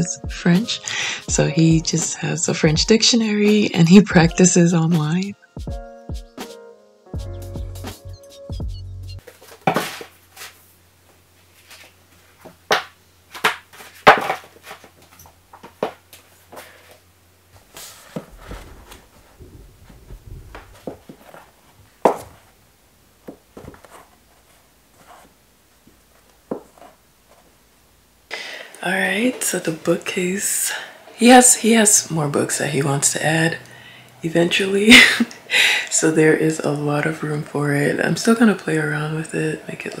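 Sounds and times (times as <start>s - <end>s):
books shuffling: 9.2s - 10.7s, 11.4s - 22.6s, 23.2s - 27.5s
books knocking on shelf: 12.7s - 14.5s, 18.1s - 21.4s.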